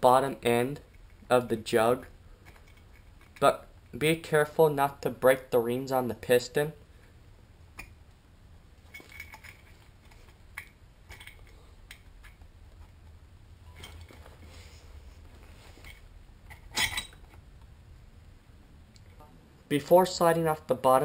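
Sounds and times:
metal engine parts clinking: 0:08.9 - 0:09.8, 0:10.5 - 0:12.4, 0:15.8 - 0:17.4.

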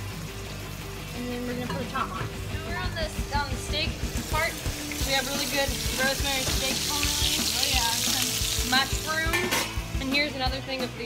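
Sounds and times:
steak sizzling in skillet: 0:00.0 - 0:10.4.

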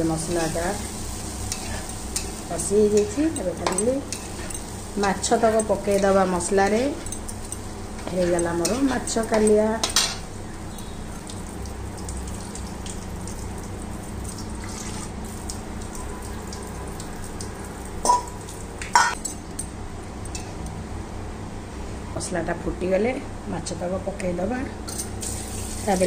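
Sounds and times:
gravy sizzling and bubbling: 0:00.0 - 0:20.9
metal utensils clinking: 0:01.5 - 0:10.2.

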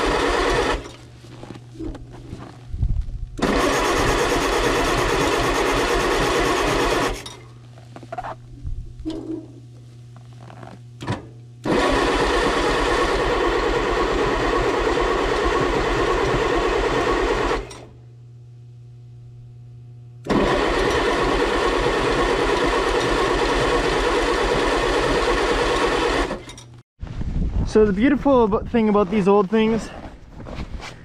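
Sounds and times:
starter motor cranking engine: 0:00.0 - 0:01.0, 0:03.4 - 0:07.4, 0:11.6 - 0:17.9, 0:20.2 - 0:26.7.

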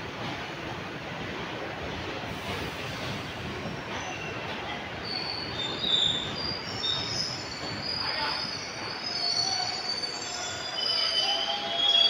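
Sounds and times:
train running rumble: 0:00.0 - 0:09.7
train wheels squealing: 0:03.7 - 0:12.0.

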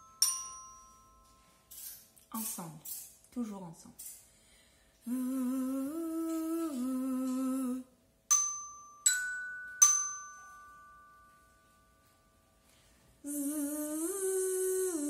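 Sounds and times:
woman humming: 0:05.0 - 0:07.9, 0:13.2 - 0:15.0
tuned metal percussion struck: 0:08.3 - 0:12.1.

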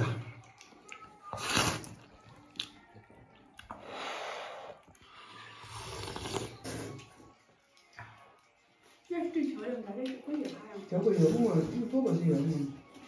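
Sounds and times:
man slurping noodles: 0:01.4 - 0:02.0, 0:05.6 - 0:07.0.

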